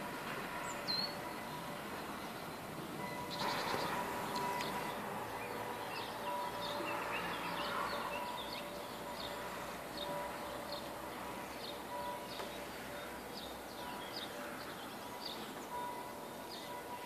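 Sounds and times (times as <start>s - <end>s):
steady outdoor hiss: 0.0s - 17.0s
songbirds chirping: 0.1s - 17.0s.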